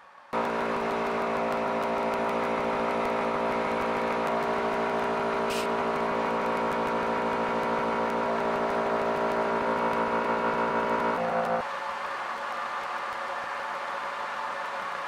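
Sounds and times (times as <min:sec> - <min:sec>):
milling spindle whine: 0:00.4 - 0:11.7
mist coolant hiss: 0:05.5 - 0:05.7.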